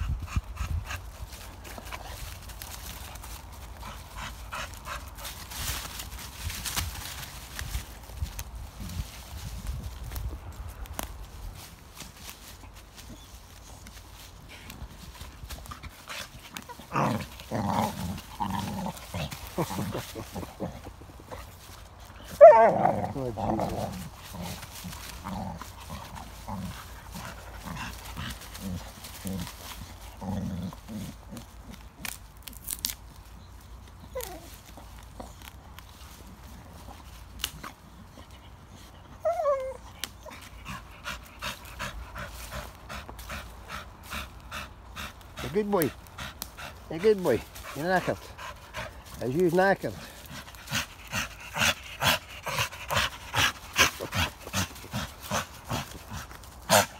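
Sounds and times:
dry leaves and twigs rustling: 0:00.0 - 0:56.9
dog growling: 0:16.0 - 0:21.5, 0:22.3 - 0:31.8, 0:50.0 - 0:56.9
dog whining: 0:34.0 - 0:34.5, 0:39.0 - 0:40.4
dog panting: 0:39.8 - 0:56.9.

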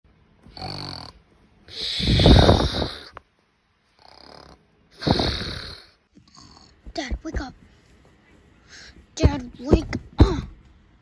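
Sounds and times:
person snoring: 0:00.5 - 0:03.2, 0:04.0 - 0:06.8.

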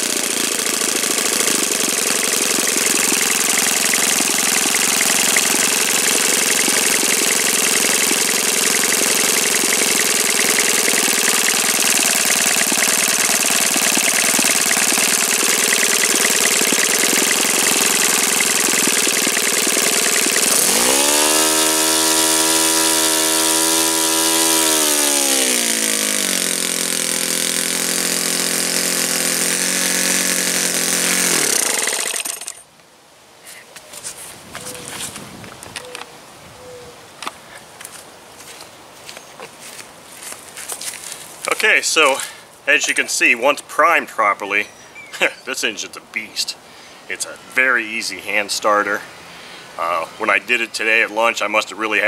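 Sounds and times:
model glow engine running: 0:00.0 - 0:32.6.

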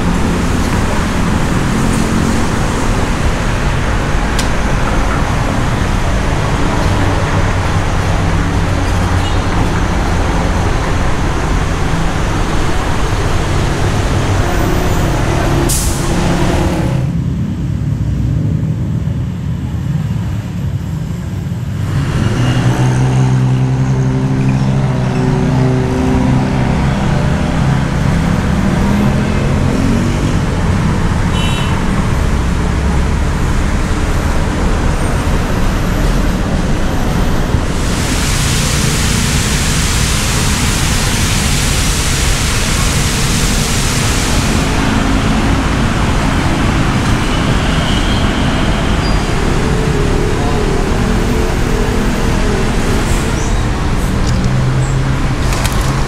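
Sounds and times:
loud hiss: 0:00.0 - 0:17.1, 0:36.4 - 0:56.0
heavy engine droning: 0:00.0 - 0:18.6, 0:20.8 - 0:56.0
rumble of passing vehicles: 0:00.0 - 0:56.0.

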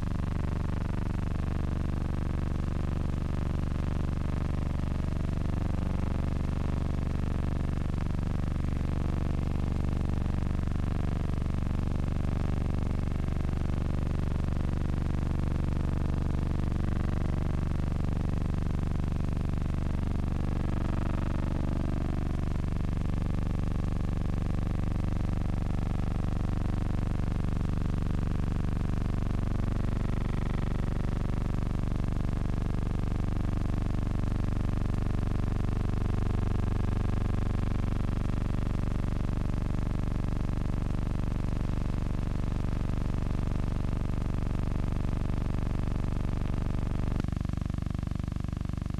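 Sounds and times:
low droning hum: 0:04.5 - 0:37.8.

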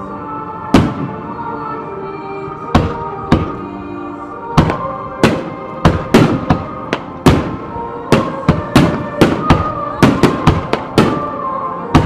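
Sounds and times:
music: 0:00.0 - 0:12.0.

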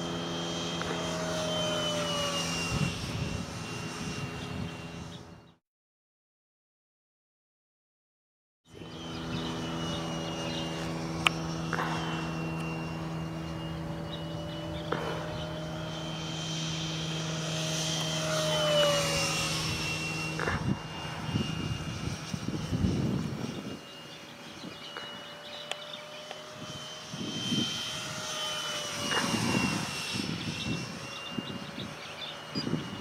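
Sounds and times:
model jet fan whining: 0:00.0 - 0:05.6, 0:08.7 - 0:33.0
steady low hum: 0:08.7 - 0:33.0.

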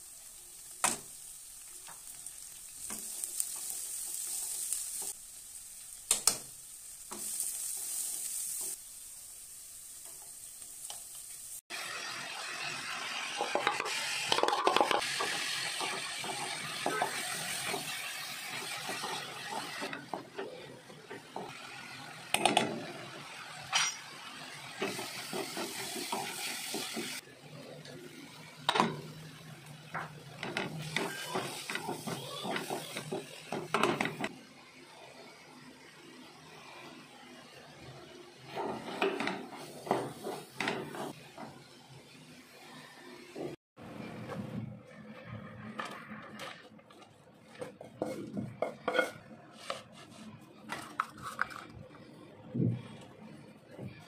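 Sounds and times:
frying sizzle: 0:00.0 - 0:43.6
spatula scraping and stirring: 0:44.9 - 0:51.8.

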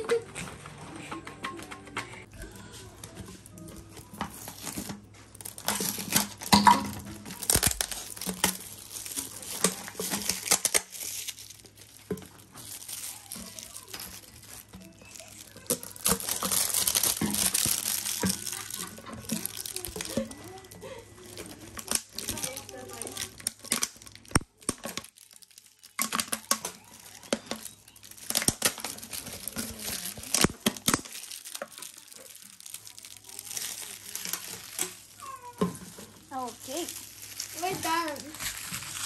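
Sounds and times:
plastic bottles crinkling: 0:02.2 - 0:39.0
plastic labels tearing: 0:02.3 - 0:39.0.

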